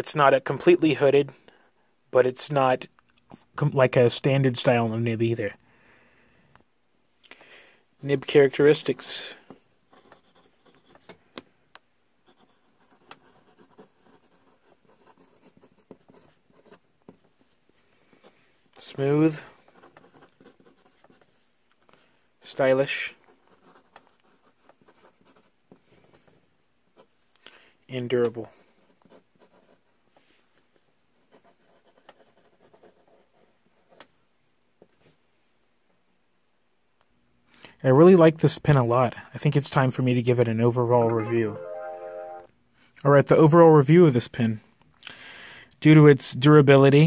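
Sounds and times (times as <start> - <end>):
pen scratching on paper: 9.9 - 11.1, 12.2 - 17.2, 19.6 - 21.4, 23.3 - 25.6, 28.8 - 29.9, 31.2 - 34.0.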